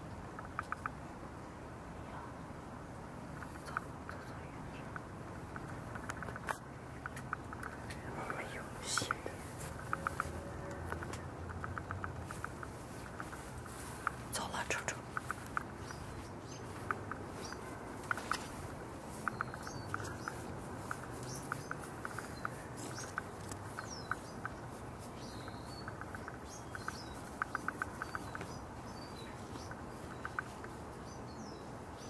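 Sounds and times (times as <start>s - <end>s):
low steady hiss: 0.0s - 32.0s
faint bird chirps: 19.1s - 32.0s.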